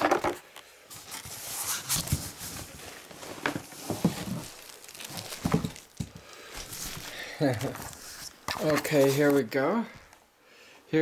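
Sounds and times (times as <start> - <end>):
cardboard and styrofoam rustling: 0.9 - 9.5.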